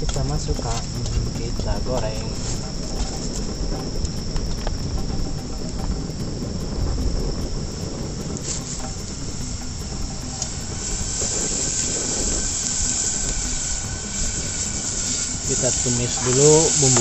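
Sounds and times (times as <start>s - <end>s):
crickets chirring: 0.0s - 17.0s
low rumble: 0.0s - 17.0s
food sizzling in oil: 10.3s - 17.0s.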